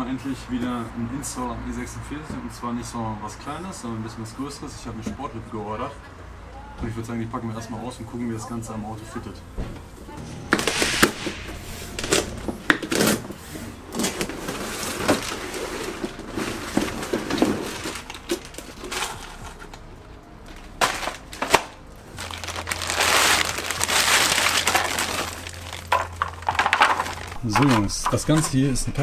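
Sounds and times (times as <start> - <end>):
cardboard rustling and scraping: 10.2 - 19.8, 20.6 - 28.7
plastic wrap crinkling: 10.6 - 19.8, 20.5 - 28.6.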